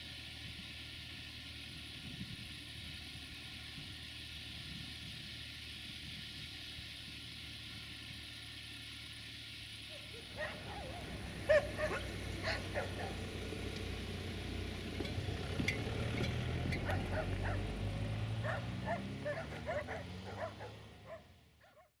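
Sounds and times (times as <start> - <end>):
low engine hum: 0.0 - 22.0
dogs barking and yelping: 9.9 - 13.3, 16.7 - 22.0.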